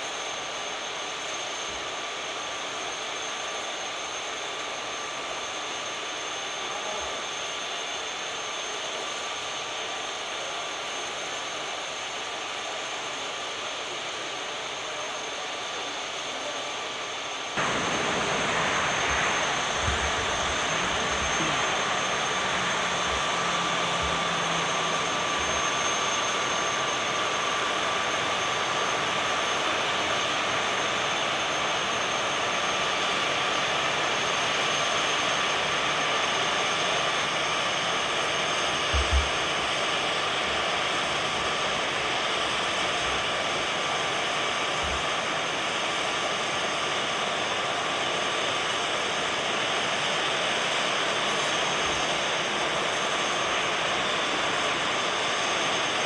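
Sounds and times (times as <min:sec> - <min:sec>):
jet engines rushing hum: 0:16.9 - 0:56.0.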